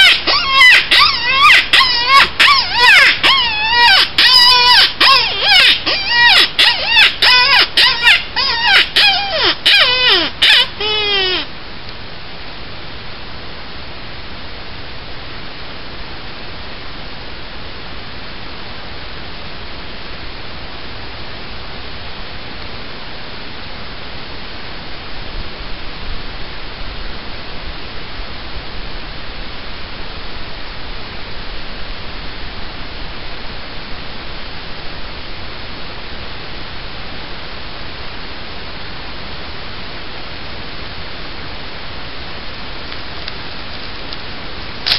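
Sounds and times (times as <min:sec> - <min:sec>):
steady hiss: 0:05.8 - 0:44.9.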